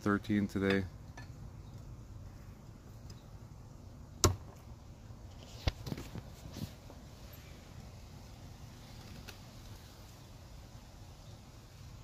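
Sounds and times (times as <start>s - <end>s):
knife striking wooden stump: 4.2s - 4.6s.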